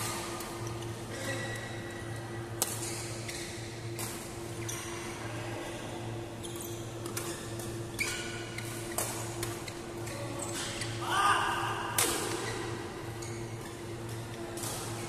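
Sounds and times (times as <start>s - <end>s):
shoe squeaks on court floor: 2.8s - 3.6s, 4.6s - 5.1s, 6.4s - 9.0s.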